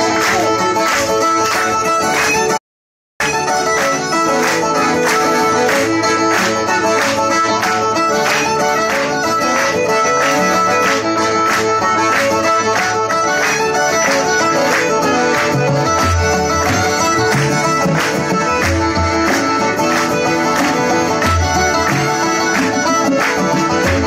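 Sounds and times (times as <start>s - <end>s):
banjo: 0.0s - 2.6s, 3.2s - 24.0s
fiddle: 0.0s - 2.6s, 3.2s - 24.0s
guitar: 0.0s - 2.6s, 3.2s - 24.0s
piano accordion: 0.0s - 2.6s, 3.2s - 24.0s.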